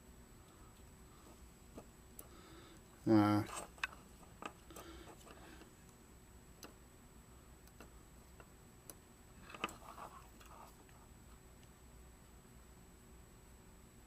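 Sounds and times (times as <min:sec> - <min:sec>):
faint sharp clicks of wires: 0:07.6 - 0:09.0.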